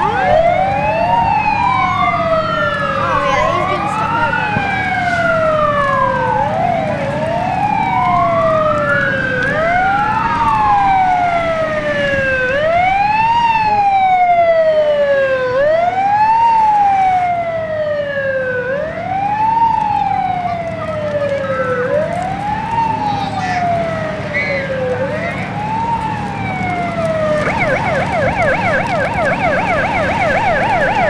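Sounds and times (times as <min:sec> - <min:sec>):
fire engine siren wailing: 0:00.0 - 0:31.0
low engine rumble: 0:00.0 - 0:31.0.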